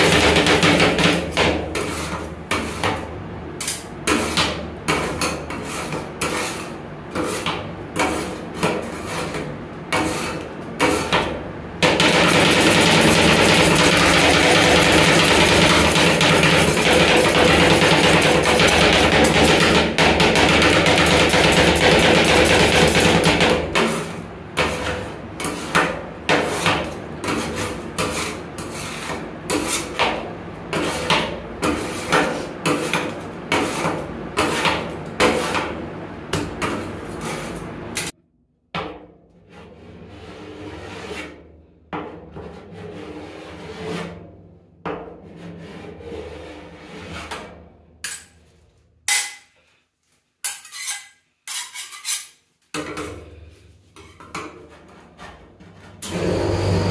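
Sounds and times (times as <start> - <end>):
spatula scraping strokes: 1.7 - 3.0, 3.7 - 11.2, 23.8 - 30.0, 30.7 - 35.6, 36.8 - 37.7, 39.5 - 41.4, 50.4 - 52.4, 53.4 - 56.0
metal spatulas chopping on steel: 10.0 - 28.8, 49.1 - 49.5.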